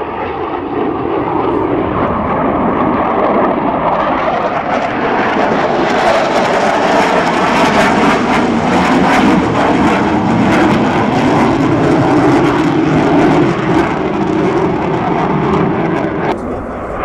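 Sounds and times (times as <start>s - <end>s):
jet flying past: 0.0s - 17.0s.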